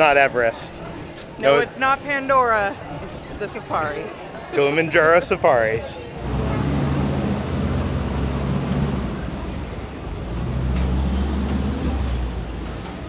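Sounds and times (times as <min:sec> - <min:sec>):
truck engine low hum: 0:06.2 - 0:13.0.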